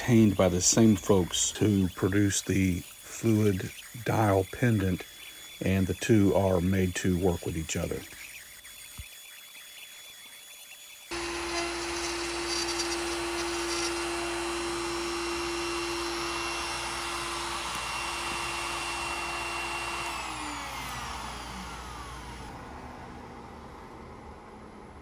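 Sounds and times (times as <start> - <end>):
dust extraction vacuum: 0.0 - 9.4, 11.0 - 25.0
router spinning at high speed: 0.0 - 22.8.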